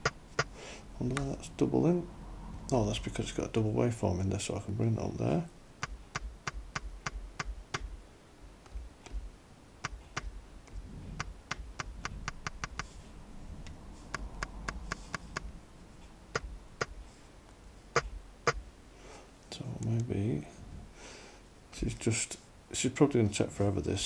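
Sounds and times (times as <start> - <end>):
pads and buttons tapping: 0.0 - 1.3, 5.8 - 8.0, 8.6 - 13.0, 14.1 - 15.5, 16.3 - 17.0, 18.0 - 18.6.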